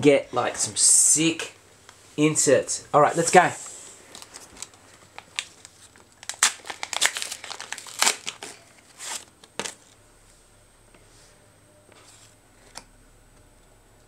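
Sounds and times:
wrapper tearing and crinkling: 4.1 - 10.0.

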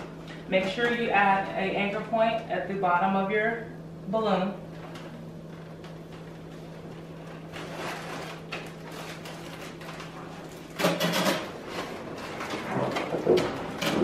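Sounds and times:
foil balloon crinkling: 4.8 - 10.8.

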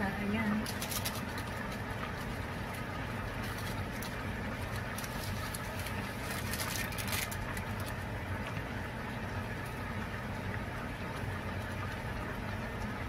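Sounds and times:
constant low hum: 0.0 - 13.0
sauce bubbling in a frying pan: 0.0 - 13.0.

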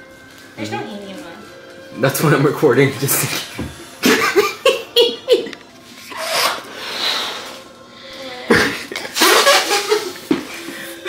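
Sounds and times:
person blowing up a balloon: 6.0 - 7.8, 8.5 - 10.8.

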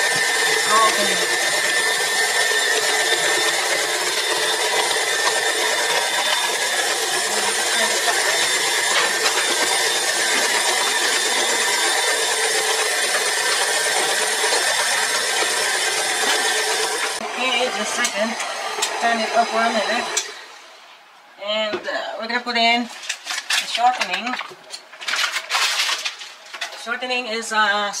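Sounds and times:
electric mixer running: 0.0 - 20.6.

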